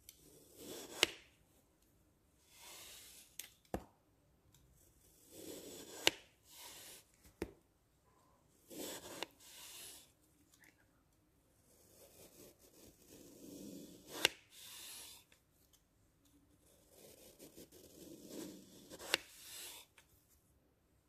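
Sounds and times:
knife scraping through foam: 0:00.2 - 0:01.2, 0:02.5 - 0:03.4, 0:05.1 - 0:07.1, 0:08.7 - 0:10.1, 0:11.7 - 0:15.2, 0:16.9 - 0:19.9.

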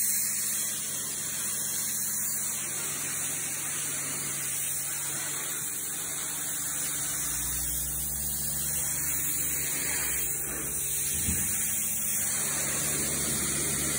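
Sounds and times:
pressure washer running: 0:00.0 - 0:13.9.

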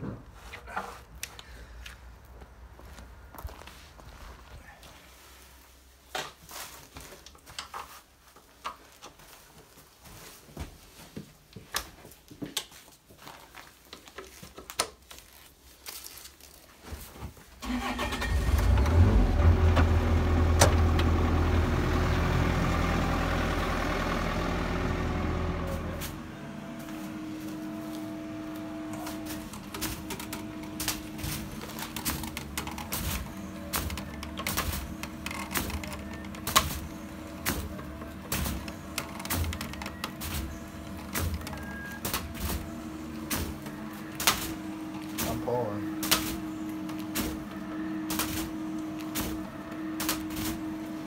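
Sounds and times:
hydraulic puller rumbling: 0:17.6 - 0:51.0.

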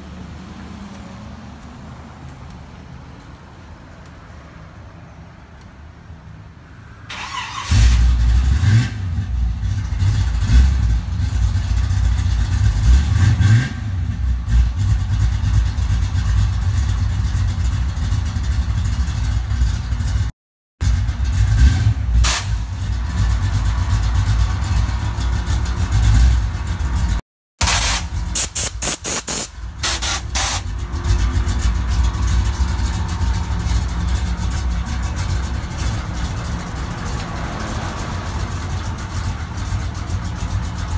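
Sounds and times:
sharp clicks or pops: 0:27.6 - 0:30.6.

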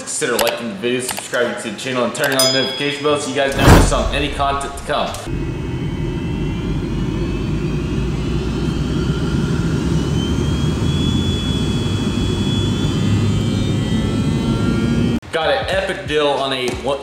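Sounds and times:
jet engines rumbling and whining: 0:03.5 - 0:15.2.

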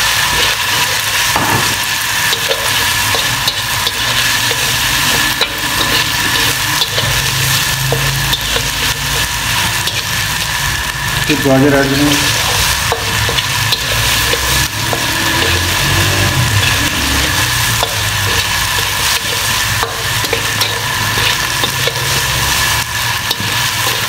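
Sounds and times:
food sizzling in a wok: 0:00.0 - 0:24.0
metal spatula scraping: 0:00.2 - 0:10.8, 0:11.6 - 0:24.0.

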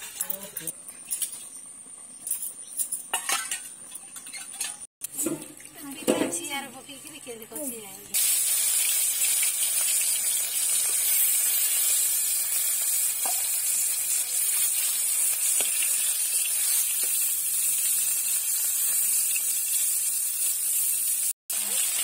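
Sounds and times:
fish sizzling in hot oil: 0:05.1 - 0:22.0.

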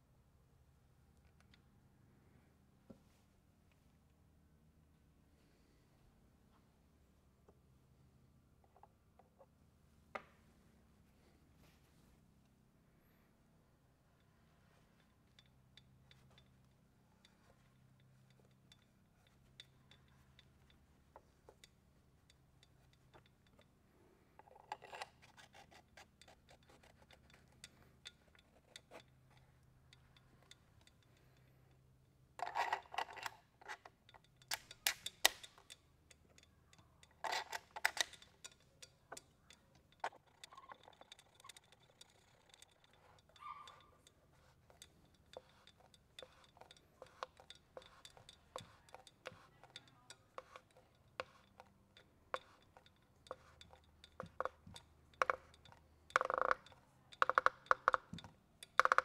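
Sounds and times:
tool clicking and rubbing: 0:24.4 - 0:31.5, 0:32.4 - 0:59.0.

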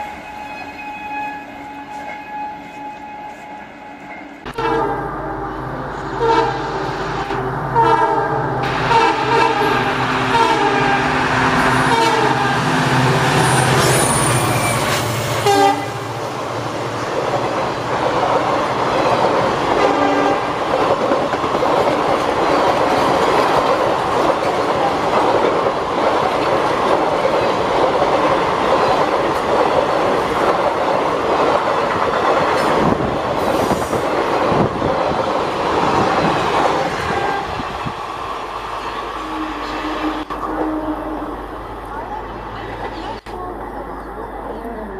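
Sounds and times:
train wheels rushing on rail: 0:00.0 - 0:44.9
locomotive air horn blasts: 0:00.1 - 0:13.0, 0:15.4 - 0:16.2, 0:19.8 - 0:20.5, 0:37.0 - 0:37.7, 0:39.2 - 0:41.4
diesel locomotive engine running: 0:04.4 - 0:44.9
clickety-clack over rail joints: 0:17.0 - 0:38.0.

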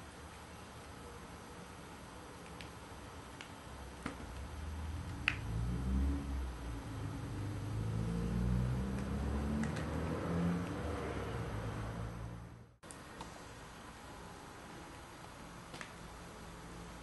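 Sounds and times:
picture cube blocks clicking: 0:08.9 - 0:10.0.

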